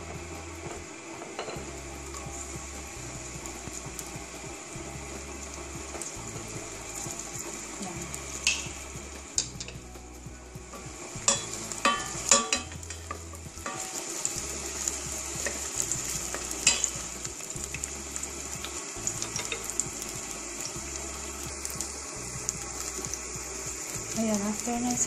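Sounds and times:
onions sizzling in hot oil: 0:00.0 - 0:25.0
wooden spatula knocking pot: 0:10.6 - 0:14.0.

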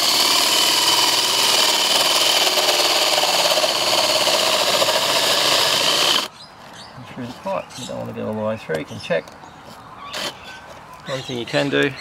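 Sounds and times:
drill motor whining: 0:00.0 - 0:06.3
hole saw grinding through plastic: 0:00.0 - 0:06.3.

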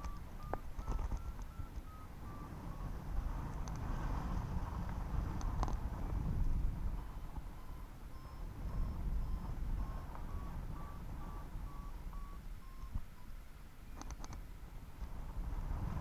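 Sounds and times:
sharp clicks: 0:00.0 - 0:02.0, 0:03.4 - 0:03.9, 0:13.9 - 0:14.5
variometer short beeps: 0:00.0 - 0:03.6, 0:06.8 - 0:14.5
wind rumble on microphone: 0:00.0 - 0:13.2, 0:13.9 - 0:16.0.

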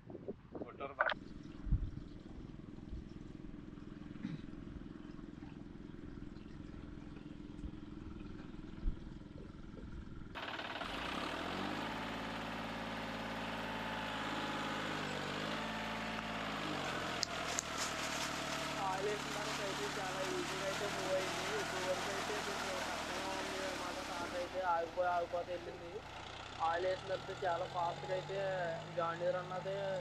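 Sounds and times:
tractor engine: 0:02.2 - 0:30.0
fuel pouring into tank: 0:13.4 - 0:25.3.

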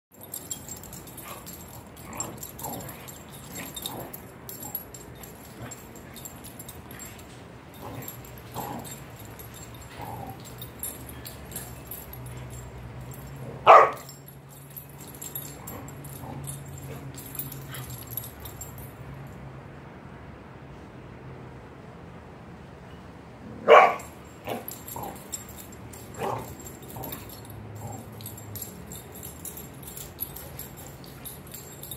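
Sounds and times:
dog barking loudly: 0:13.6 - 0:14.1, 0:23.6 - 0:24.6.

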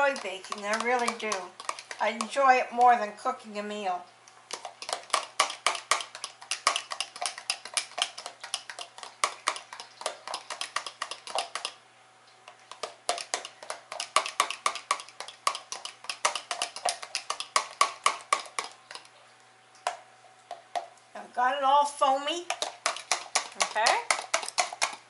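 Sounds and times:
fork beating egg whites in jug: 0:00.0 - 0:03.1, 0:04.5 - 0:11.8, 0:12.5 - 0:19.2, 0:22.0 - 0:25.0.

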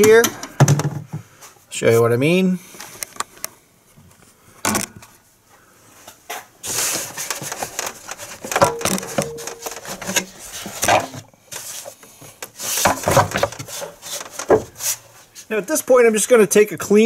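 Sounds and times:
plastic and rubber rubbing and knocking: 0:12.6 - 0:15.0.

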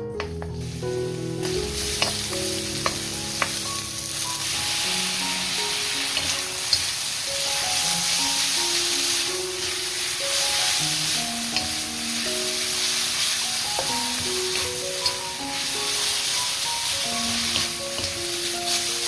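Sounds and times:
background music melody: 0:00.0 - 0:19.0
oil sizzling in a wok: 0:00.1 - 0:19.0.

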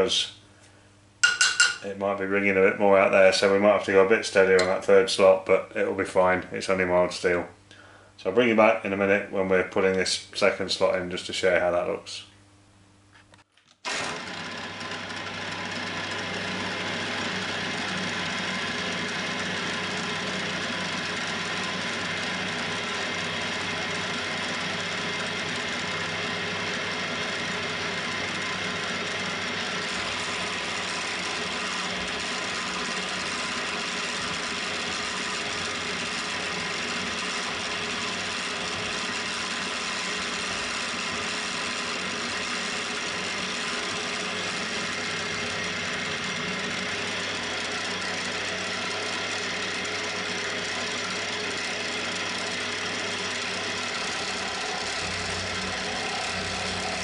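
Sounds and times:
milling machine cutting steel: 0:27.4 - 0:57.0.

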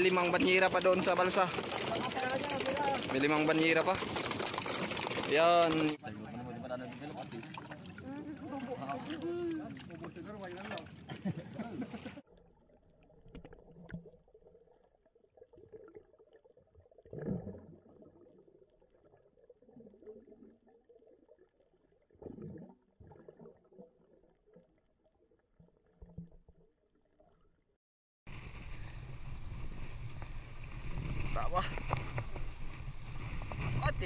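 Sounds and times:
open sea noise: 0:00.0 - 0:21.3, 0:28.3 - 0:34.0
water gurgling and sloshing: 0:00.0 - 0:27.7, 0:28.3 - 0:34.0.

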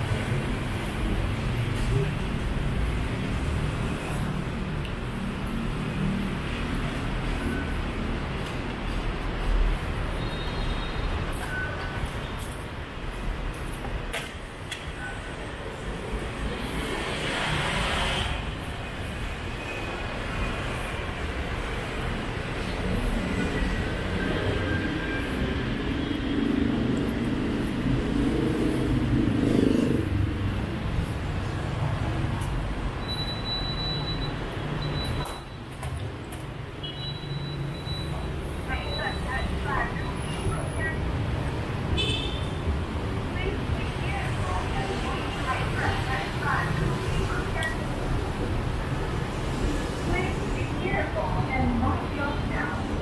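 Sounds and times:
motorbikes and cars passing: 0:00.0 - 0:10.1, 0:15.6 - 0:33.1
city street traffic rumble: 0:00.0 - 0:53.0
faint high beeps: 0:33.0 - 0:35.6, 0:36.9 - 0:40.2.

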